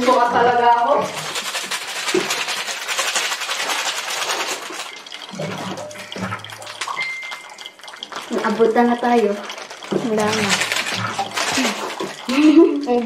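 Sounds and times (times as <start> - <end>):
water trickling into a glass: 4.1 - 13.0.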